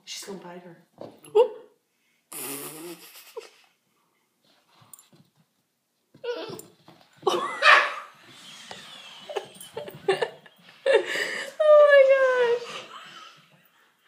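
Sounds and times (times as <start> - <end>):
puppy barking: 7.6 - 8.1.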